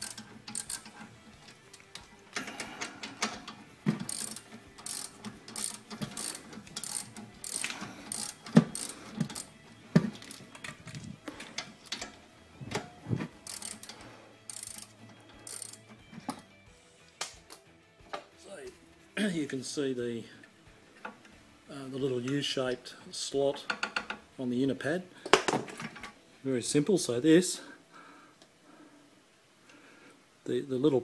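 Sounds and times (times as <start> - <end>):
socket ratchet clicking: 0.0 - 1.0, 1.8 - 9.5, 13.4 - 15.8.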